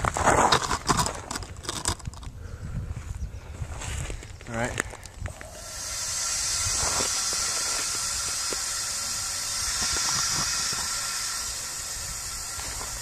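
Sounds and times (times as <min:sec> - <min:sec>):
compressed air hissing: 0:05.2 - 0:13.0.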